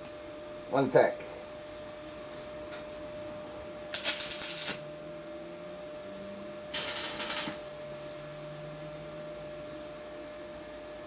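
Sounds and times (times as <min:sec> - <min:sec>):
welding arc crackling: 0:03.9 - 0:05.0, 0:06.7 - 0:08.4.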